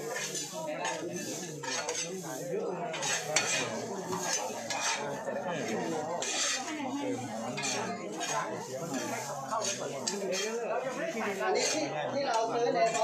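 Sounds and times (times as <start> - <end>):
shovels scraping soil: 0.0 - 11.9.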